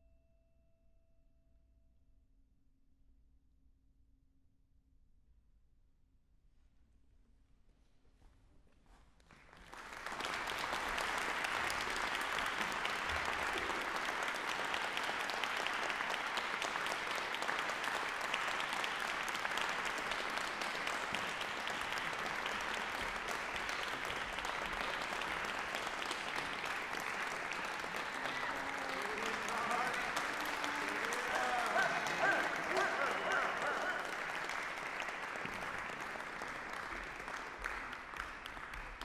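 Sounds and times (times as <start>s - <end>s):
audience applauding: 9.3s - 39.0s.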